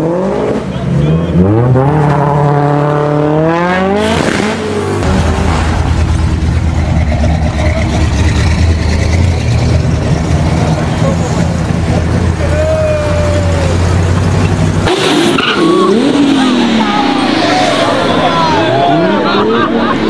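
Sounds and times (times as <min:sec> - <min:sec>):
car engine revving hard: 0:00.0 - 0:12.4
car engine low rumble: 0:04.6 - 0:20.0.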